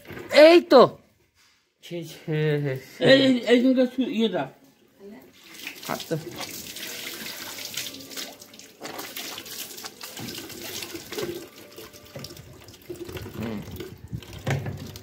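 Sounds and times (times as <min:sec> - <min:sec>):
water splashing into bucket: 0:05.4 - 0:15.0.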